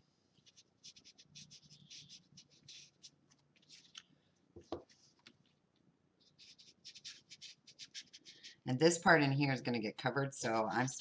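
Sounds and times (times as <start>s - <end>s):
ink pad scratching on chipboard: 0.4s - 4.0s, 6.2s - 8.6s.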